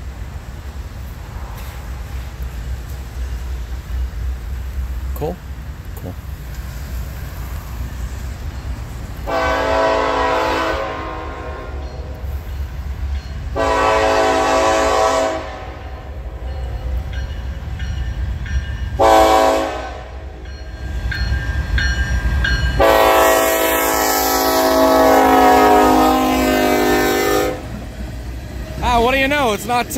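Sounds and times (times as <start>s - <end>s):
diesel locomotive rumble: 0.0s - 29.9s
locomotive air horn blasts: 9.2s - 12.2s, 13.5s - 16.2s, 19.0s - 20.2s, 22.8s - 27.7s.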